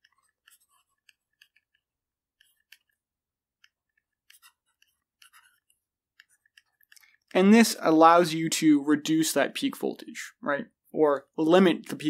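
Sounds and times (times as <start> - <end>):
stylus tapping on tablet screen: 0.0 - 7.3.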